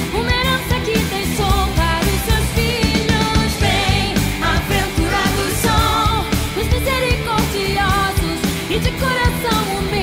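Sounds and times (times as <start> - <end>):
steady drum beat: 1.2 - 8.9
person singing over a band: 3.1 - 8.0.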